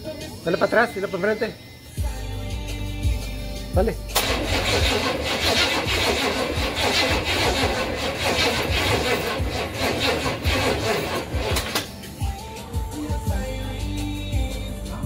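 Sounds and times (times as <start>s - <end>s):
engine cranking without firing: 4.1s - 11.9s.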